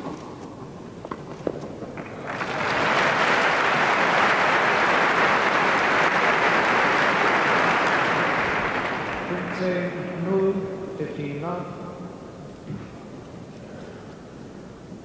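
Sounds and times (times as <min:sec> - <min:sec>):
stadium crowd applauding: 0:01.9 - 0:10.3.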